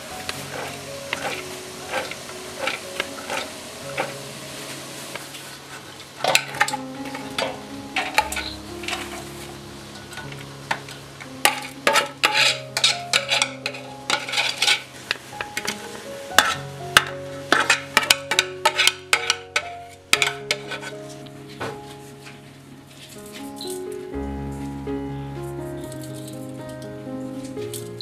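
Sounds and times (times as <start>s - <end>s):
background music of held notes: 0.0s - 28.0s
metal spoon scraping steel pan: 0.2s - 4.2s, 6.2s - 14.9s, 16.4s - 21.2s.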